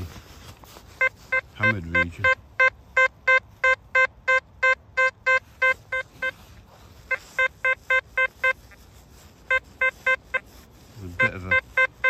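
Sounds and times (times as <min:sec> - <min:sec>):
metal detector beeps: 0:01.0 - 0:06.4, 0:07.0 - 0:08.8, 0:09.4 - 0:10.5, 0:11.1 - 0:12.0.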